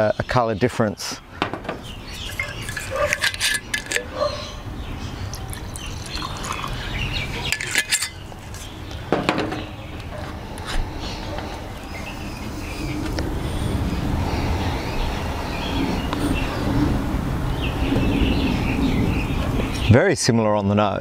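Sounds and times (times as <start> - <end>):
glasses clinking on table: 2.2 - 4.1
liquid pouring into glass: 5.3 - 7.8.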